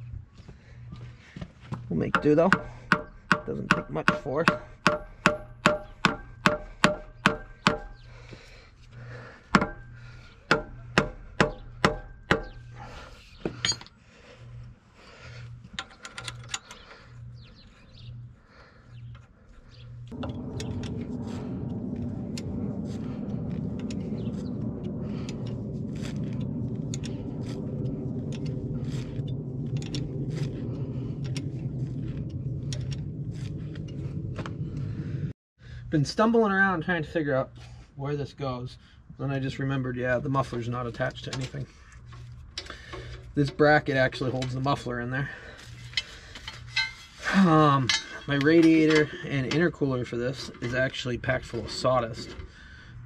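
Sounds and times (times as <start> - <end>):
hammer tapping on metal: 2.1 - 8.0, 10.5 - 12.6
steady rushing noise: 20.0 - 35.3.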